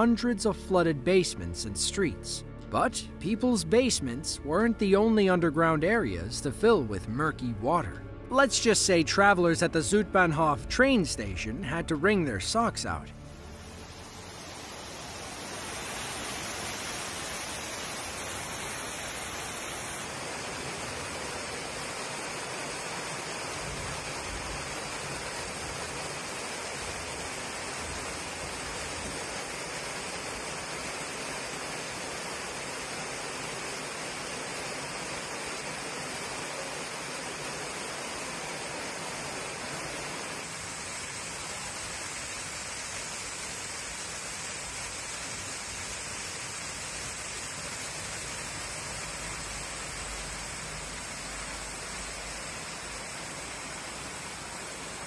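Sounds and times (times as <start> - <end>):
floodwater pouring: 13.3 - 53.6.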